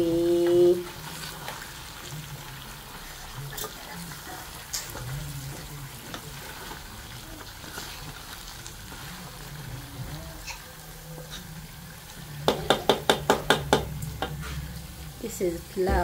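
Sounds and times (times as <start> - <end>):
meat sizzling in a pot: 0.0 - 16.0
wooden spoon knocking on pot: 12.4 - 14.4.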